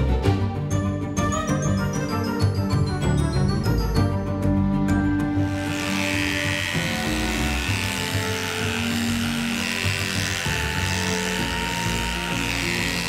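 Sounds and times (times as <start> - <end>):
background music with held notes: 0.0 - 13.0
electric clippers buzzing: 5.1 - 13.0.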